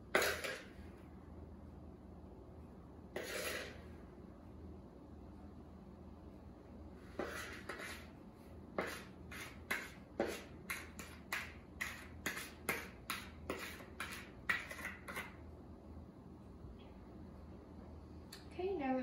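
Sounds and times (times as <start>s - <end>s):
metal spoon scraping plastic bowl: 0.1s - 0.7s, 3.2s - 3.9s, 7.2s - 8.1s, 8.8s - 15.4s.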